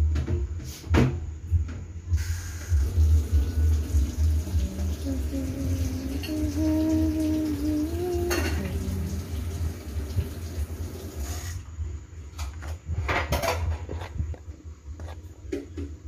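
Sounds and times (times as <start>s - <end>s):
hiss: 2.2s - 3.1s, 11.1s - 11.6s.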